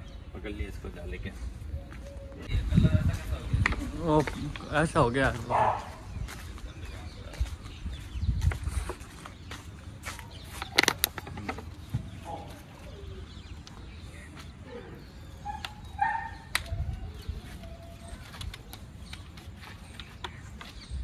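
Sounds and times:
clicks and scuffs of handling: 10.0 - 12.6, 16.5 - 20.9.

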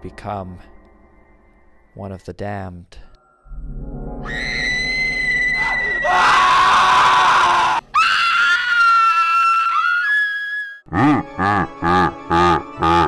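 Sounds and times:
low pulsing drone: 0.0 - 2.2, 3.1 - 7.9
long shrill screams: 4.2 - 10.8.

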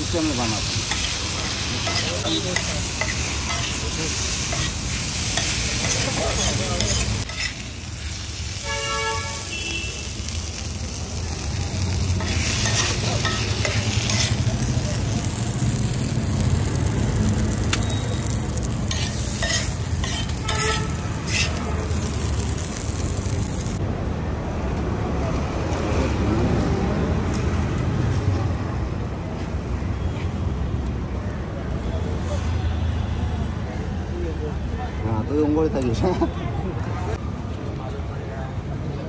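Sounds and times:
food sizzling on a griddle: 0.0 - 23.8
vehicle horn toot: 8.6 - 10.2, 20.4 - 21.0.

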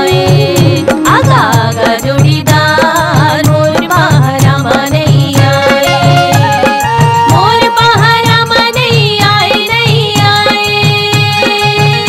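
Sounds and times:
steady drum beat: 0.0 - 12.0
wavering melody: 5.6 - 8.4.

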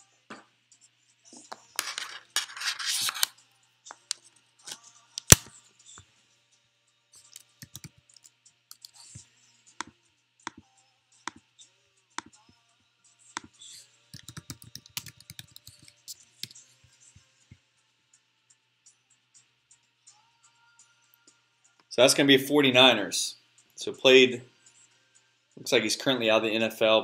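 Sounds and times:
typing on computer keyboard: 7.6 - 8.0, 14.2 - 16.6.

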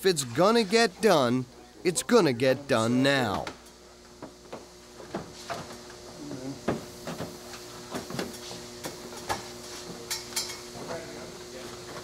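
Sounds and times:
faint steady hum: 0.0 - 5.2.

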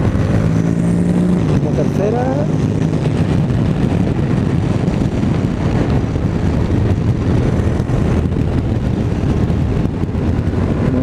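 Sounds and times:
motorcycle engine running: 0.0 - 11.0
wind rushing over microphone: 0.0 - 11.0.

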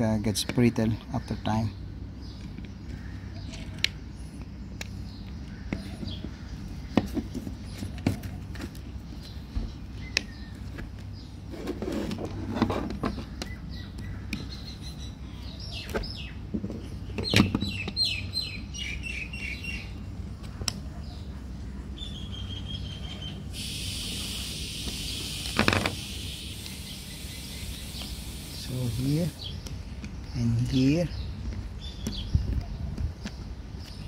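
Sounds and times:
steady hiss: 23.5 - 29.6.

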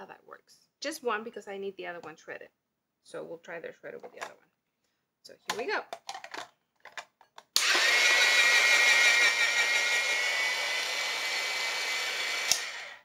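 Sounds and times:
electric motor whining: 7.6 - 13.0.

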